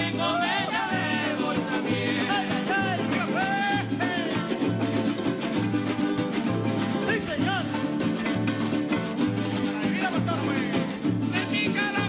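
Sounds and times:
person singing: 0.0 - 5.3, 9.6 - 12.0
strummed string instruments: 0.0 - 12.0.

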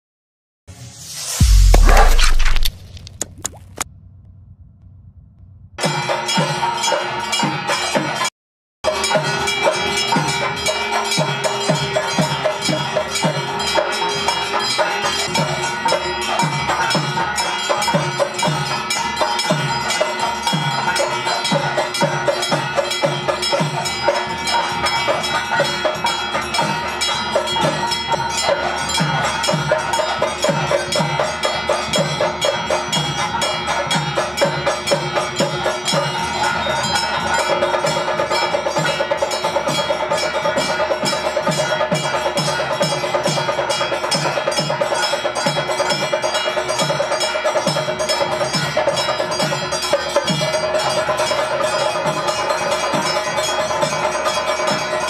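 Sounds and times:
drum beating steady rhythm: 1.3 - 3.8
bells ringing: 8.9 - 55.0.

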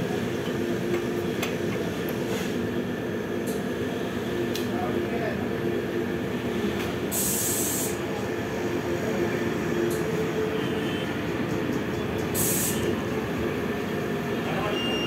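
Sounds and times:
compressed air hiss: 7.1 - 8.0, 12.4 - 12.9.

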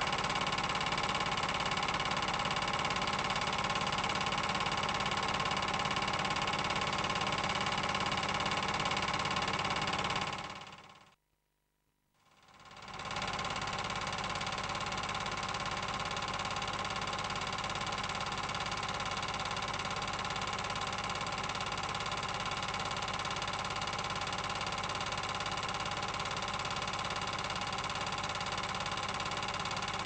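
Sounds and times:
film projector whirring: 0.0 - 11.1, 12.3 - 30.0.

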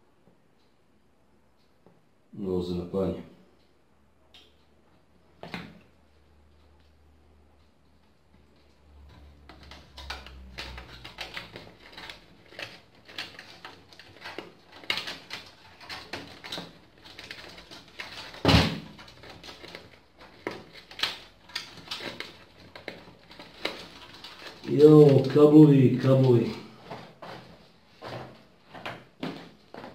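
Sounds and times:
cables scraping against metal case: 9.0 - 25.4, 26.1 - 28.8.

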